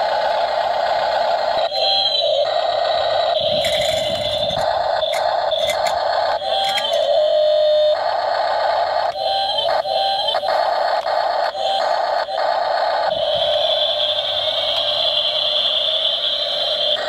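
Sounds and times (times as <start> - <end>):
small electric motors whining: 1.5 - 8.0, 13.0 - 17.0.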